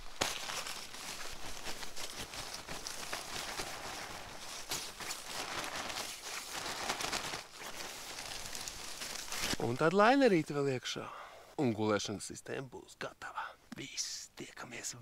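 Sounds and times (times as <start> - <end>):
sleeping bags rustling: 0.0 - 9.9.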